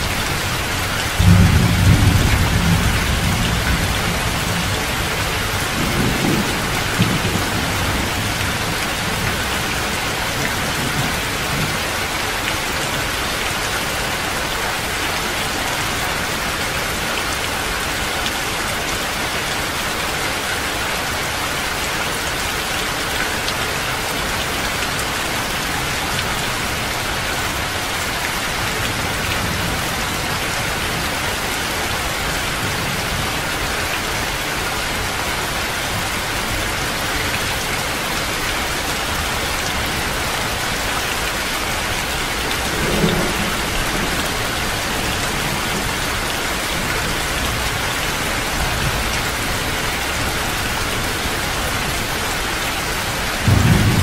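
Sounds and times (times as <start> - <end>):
thunder rumbling: 0.0 - 11.8, 42.6 - 49.7, 53.4 - 54.0
heavy rain falling: 0.0 - 54.0.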